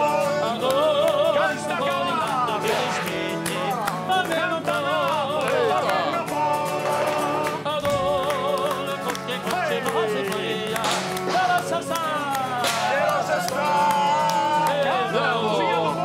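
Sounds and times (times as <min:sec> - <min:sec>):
tarantella music with singing: 0:00.0 - 0:16.0
sharp percussive hits: 0:02.6 - 0:04.0, 0:10.7 - 0:13.7.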